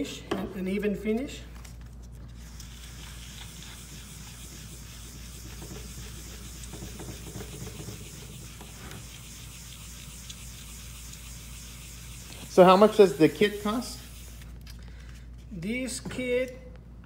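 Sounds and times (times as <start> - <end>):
pad scrubbing wet stone tile: 2.4 - 14.4.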